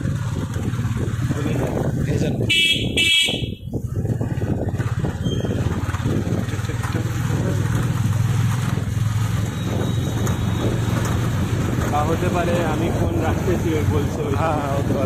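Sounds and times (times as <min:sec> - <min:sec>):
motorcycle engine running: 0:00.0 - 0:15.0
road noise: 0:00.0 - 0:15.0
vehicle horn: 0:02.5 - 0:03.7.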